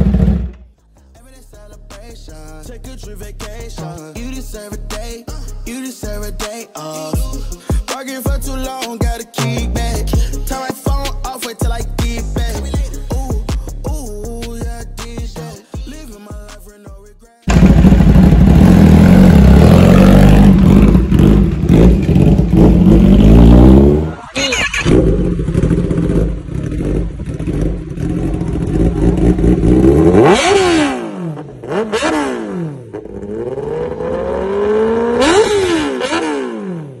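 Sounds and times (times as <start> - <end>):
motorcycle engine revving: 0.0 - 0.7, 17.5 - 37.0
motorcycle idling with throttle blips: 17.5 - 19.6, 24.6 - 30.6.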